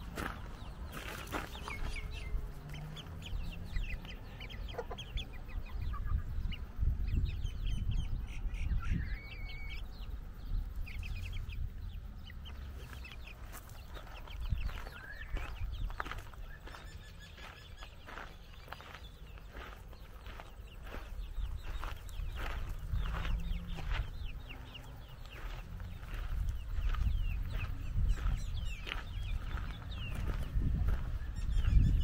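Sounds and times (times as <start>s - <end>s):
chickens clucking: 0.0s - 32.0s
low rumble: 21.4s - 32.0s.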